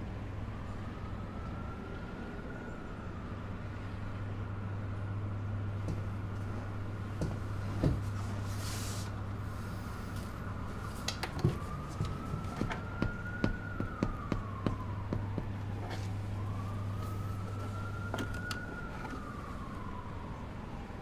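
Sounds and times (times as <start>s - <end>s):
distant siren wailing: 0.0s - 21.0s
steady low hum: 3.7s - 20.3s
sharp taps: 12.0s - 15.7s.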